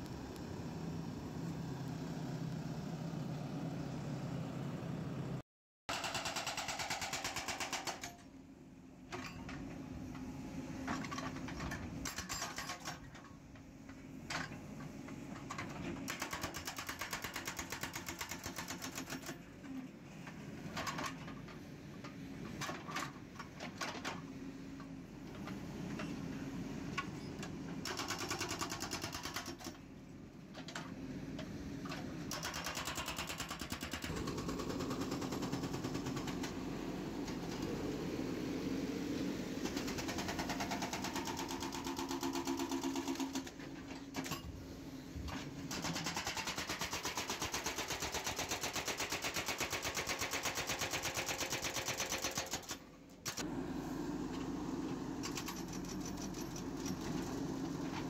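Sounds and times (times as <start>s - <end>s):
diesel engine running: 53.4s - 58.0s.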